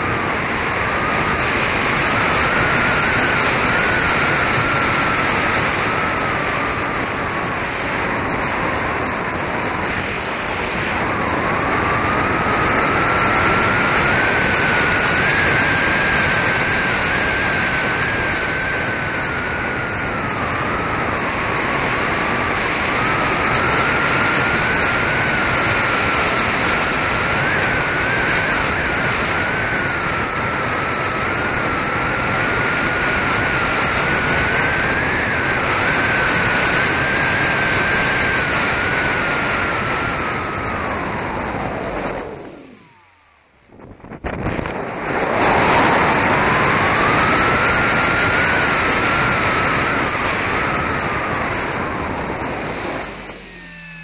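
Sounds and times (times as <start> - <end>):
electric motor and propeller whine: 0.0 - 54.0
rushing wind noise: 0.0 - 54.0.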